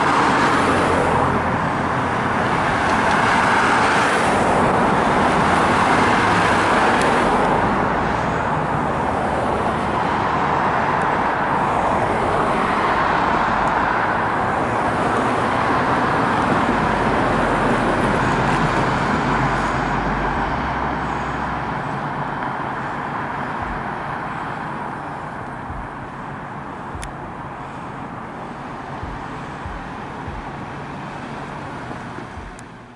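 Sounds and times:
road traffic noise: 0.0 - 32.9.

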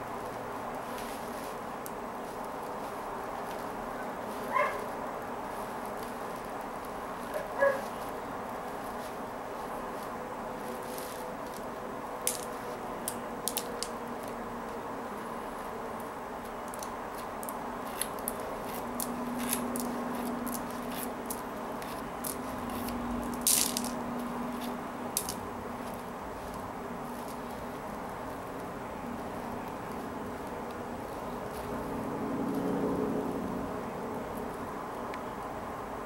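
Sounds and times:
thread rustling: 0.0 - 13.6, 16.6 - 32.1
steady background hum: 0.0 - 36.0
plastic beads clicking: 12.2 - 13.9, 16.7 - 24.0, 25.2 - 26.6.

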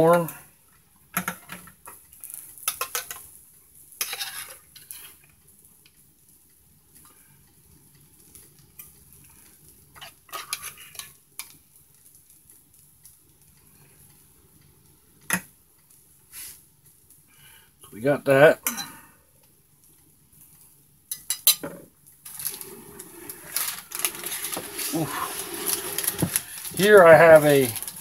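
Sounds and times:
metal utensil scraping metal pot: 4.0 - 5.2, 22.3 - 28.0.

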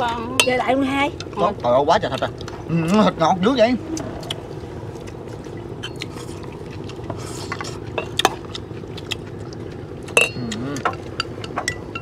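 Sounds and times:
steady low hum: 0.0 - 12.0
utensils clinking against bowls: 10.1 - 12.0.

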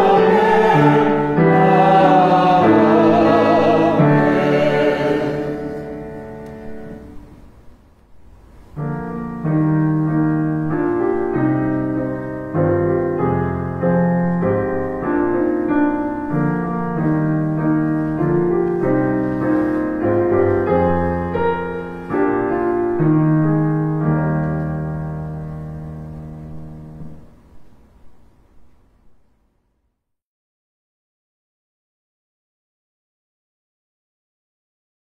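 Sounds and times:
keyboard playing slow chords: 0.0 - 7.4, 8.8 - 27.5.

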